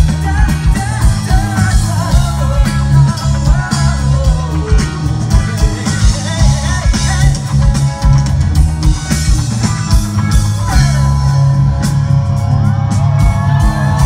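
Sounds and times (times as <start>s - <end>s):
man singing: 0.0s - 8.2s
live rock band playing: 0.0s - 14.0s
steady drum beats: 0.0s - 14.0s.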